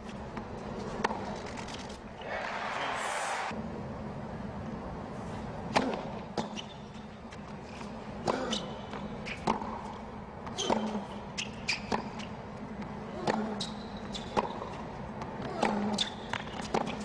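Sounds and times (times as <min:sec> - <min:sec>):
shoe squeaks: 0:06.4 - 0:07.1, 0:08.4 - 0:09.4, 0:10.6 - 0:12.3, 0:13.4 - 0:14.8.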